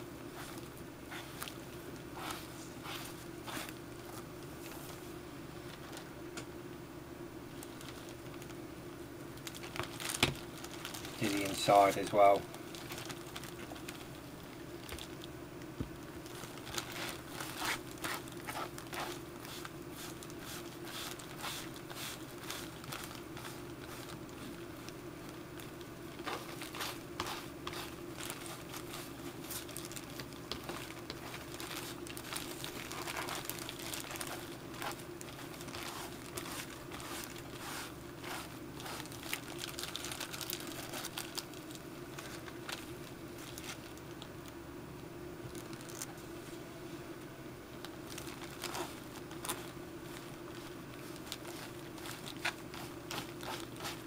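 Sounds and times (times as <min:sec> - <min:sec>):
steady low hum: 0:00.0 - 0:54.0
plastic bag crinkling: 0:07.5 - 0:08.6, 0:09.4 - 0:15.3, 0:16.0 - 0:44.4, 0:45.5 - 0:46.2, 0:47.8 - 0:54.0.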